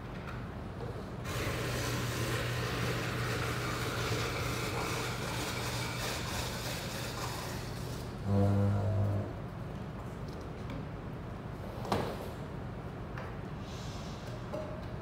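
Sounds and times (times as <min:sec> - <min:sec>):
machine humming: 0:01.2 - 0:09.5.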